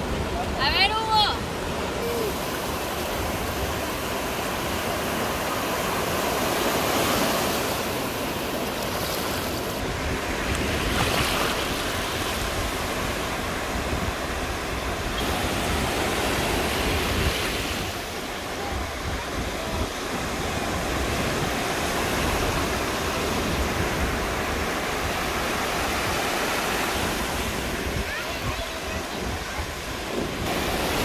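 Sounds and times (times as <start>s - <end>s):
small waves breaking: 0.0s - 31.0s.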